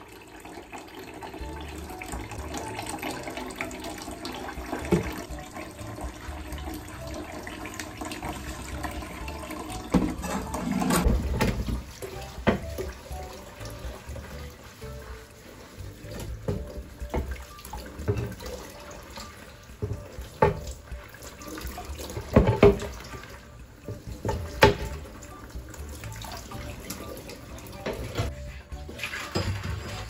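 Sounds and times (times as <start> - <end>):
tap water splashing into sink: 0.1 - 14.5, 16.0 - 28.3, 28.9 - 30.0
board knocking against sink: 9.9 - 12.9, 16.4 - 17.4, 19.8 - 20.7, 22.3 - 22.9, 23.9 - 25.0.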